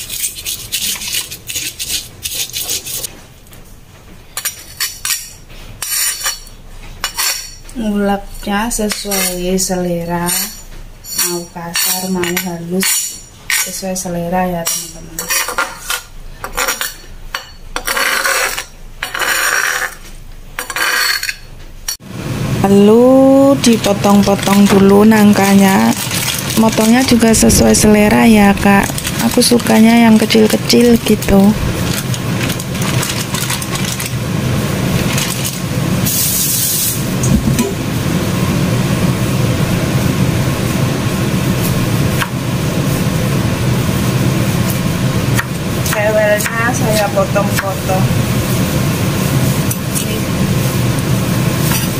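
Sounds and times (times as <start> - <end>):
metal spatula scraping stone mortar: 0.0 - 3.1, 4.4 - 7.6, 8.2 - 9.6, 14.6 - 17.0, 17.8 - 22.0
plastic bag rustling: 24.2 - 30.6, 31.3 - 35.7
machine humming: 36.9 - 51.6.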